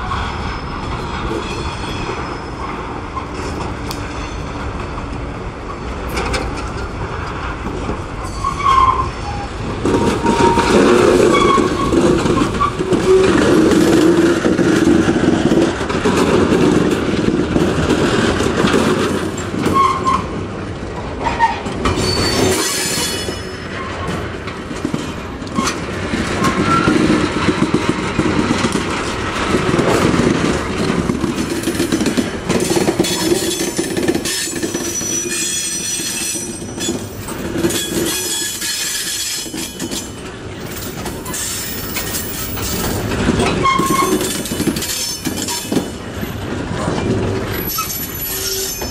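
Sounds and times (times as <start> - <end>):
diesel locomotive running: 0.0 - 48.9
wheels clattering over rail joints: 0.1 - 48.9
wheels squealing: 8.2 - 14.4, 21.2 - 24.1, 32.6 - 45.8, 46.8 - 48.9.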